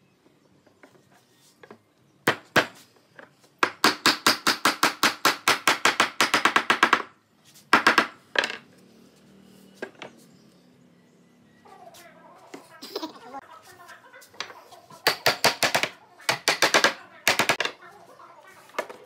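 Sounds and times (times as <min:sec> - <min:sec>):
hammer knocking wooden joint: 0:03.6 - 0:07.1.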